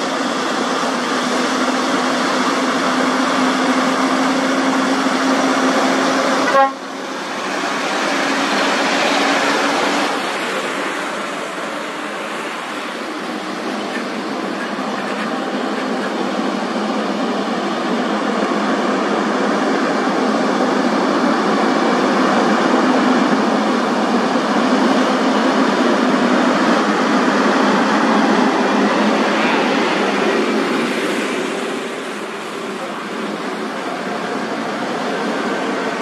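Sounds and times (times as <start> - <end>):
truck engine passing by: 0.0 - 36.0.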